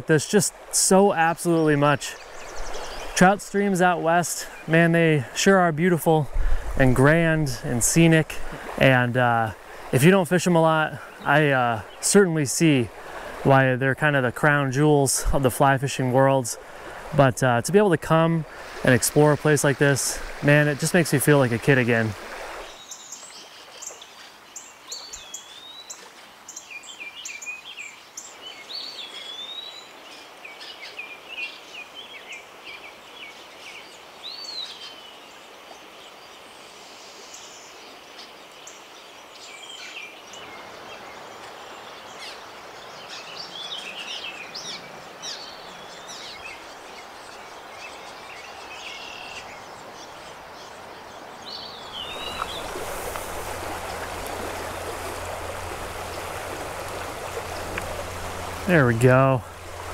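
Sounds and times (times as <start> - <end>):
birds chirping: 0.0 - 24.0, 37.1 - 59.9
stream rushing: 0.0 - 26.5, 39.0 - 59.9.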